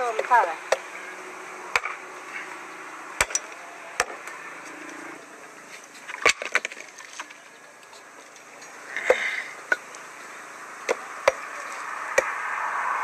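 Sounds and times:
hatchet chopping firewood: 0.0 - 1.0, 1.6 - 2.1, 3.2 - 4.4, 6.1 - 7.3, 9.0 - 10.0, 10.8 - 12.4.

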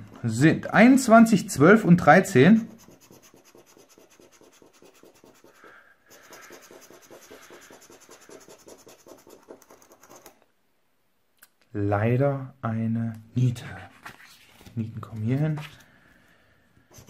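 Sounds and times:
scraper scratching lottery ticket: 2.6 - 10.3.

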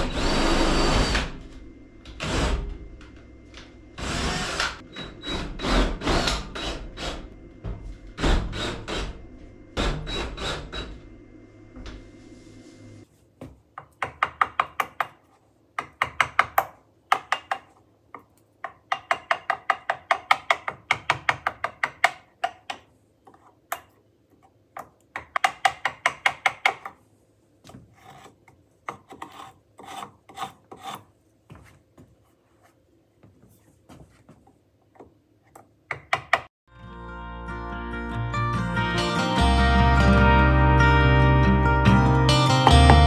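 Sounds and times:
hand tool rasping wood: 27.9 - 31.1.

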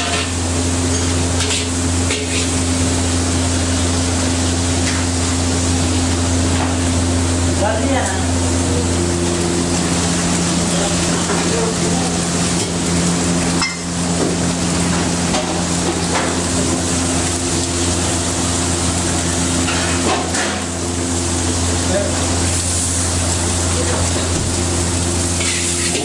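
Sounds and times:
egg sizzling in a wok: 0.0 - 7.2, 24.5 - 26.0
steady low hum: 0.0 - 26.0.

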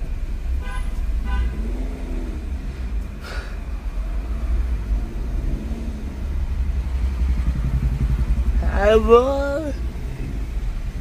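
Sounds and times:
car engine and road rumble: 0.0 - 11.0
short car horn beeps: 0.6 - 1.6.

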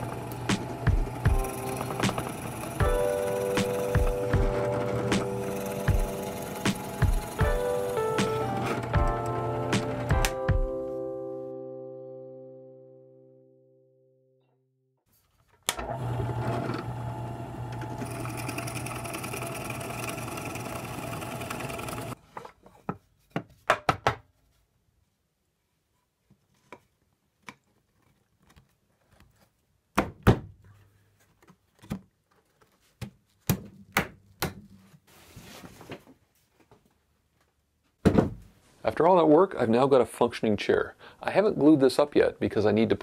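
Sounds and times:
drill press boring wood: 0.0 - 10.1, 15.7 - 22.2.

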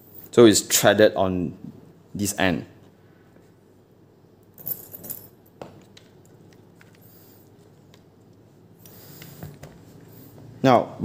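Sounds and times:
small parts rattling: 4.5 - 5.4.

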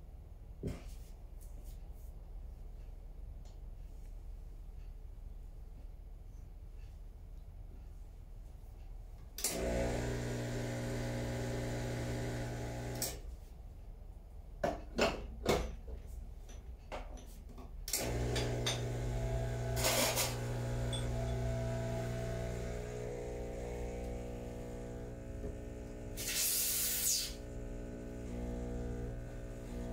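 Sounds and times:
espresso machine pump buzzing: 9.5 - 13.2, 18.0 - 29.9
brief hiss: 26.2 - 27.4.

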